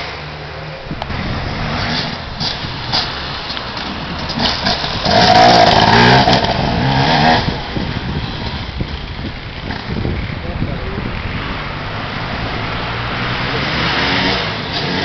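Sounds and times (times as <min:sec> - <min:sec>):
dirt bike revving past: 0:04.3 - 0:08.8.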